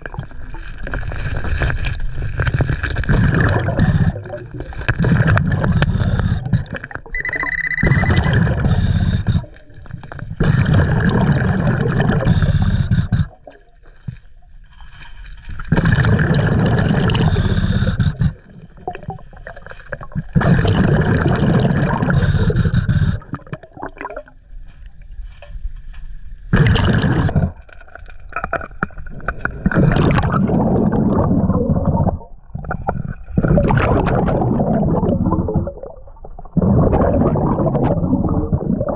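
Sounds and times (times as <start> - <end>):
bubbling scuba exhalations: 0.0 - 14.0, 15.5 - 24.4, 26.5 - 38.9
scuba regulator inhalations: 3.3 - 13.6, 15.8 - 18.6, 20.6 - 23.5.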